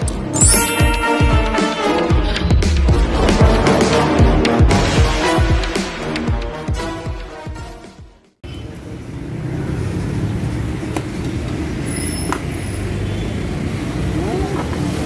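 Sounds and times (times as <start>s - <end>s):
intro music: 0.0s - 8.4s.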